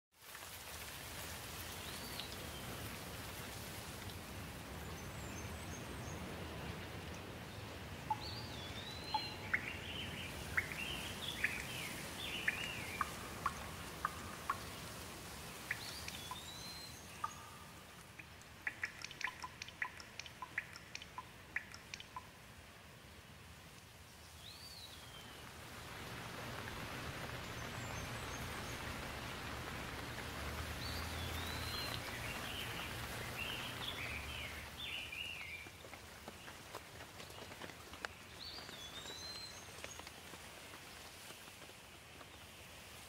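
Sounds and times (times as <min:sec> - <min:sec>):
steady rain falling: 0:00.1 - 0:43.0
birds calling: 0:08.1 - 0:22.3, 0:25.0 - 0:35.6
water drops dripping: 0:08.1 - 0:22.4, 0:26.5 - 0:34.7.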